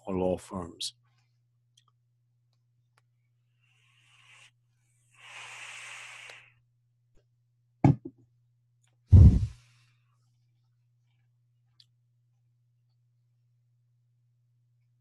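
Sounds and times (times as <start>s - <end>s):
breathy exhale: 3.6s - 6.6s
heavy thumps: 7.8s - 8.1s, 9.1s - 9.6s.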